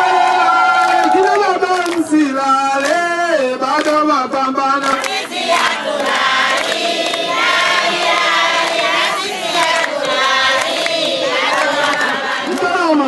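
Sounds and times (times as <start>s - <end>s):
women singing in chorus: 4.8s - 12.6s.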